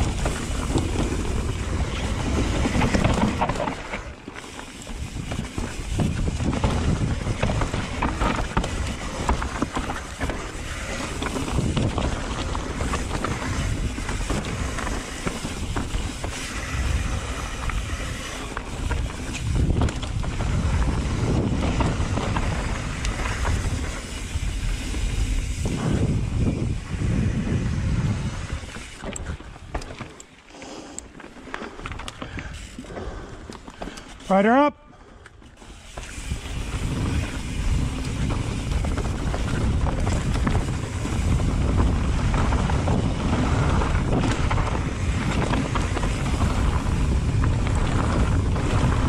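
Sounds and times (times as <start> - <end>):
bike knocking over bumps: 0.0 - 4.1, 4.9 - 24.1
wind rushing over microphone: 0.0 - 4.1, 4.9 - 29.8, 36.0 - 49.0
tyres rolling over dirt and rocks: 0.0 - 30.5, 35.5 - 49.0.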